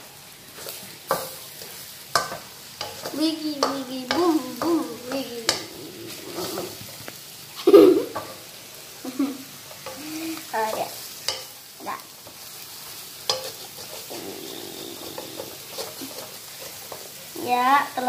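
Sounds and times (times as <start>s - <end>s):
frying sizzle: 0.0s - 18.0s
spatula scraping a wok: 0.4s - 7.1s, 9.7s - 11.6s, 12.2s - 17.4s.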